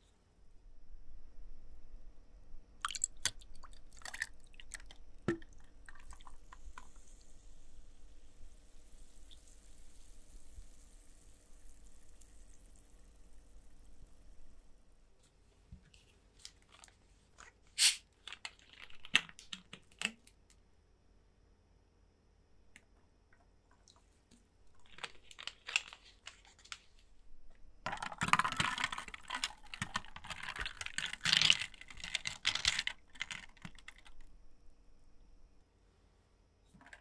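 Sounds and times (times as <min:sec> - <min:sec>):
drink fizzing over ice: 0:02.8 - 0:14.7.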